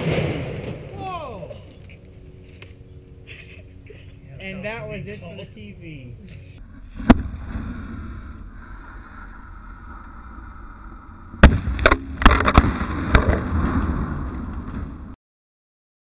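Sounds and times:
explosive bangs: 0.0 - 1.6, 11.4 - 13.8.

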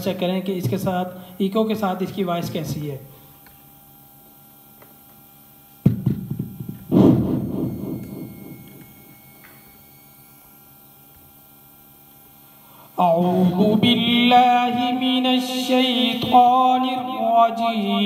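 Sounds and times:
speaker electrical hum: 0.0 - 18.0
thump through speaker: 5.8 - 7.2.

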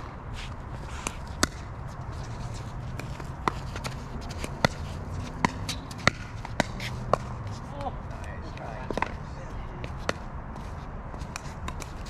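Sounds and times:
ball bouncing on hard court: 1.0 - 1.8, 2.4 - 8.0, 8.6 - 9.2, 11.2 - 12.0.

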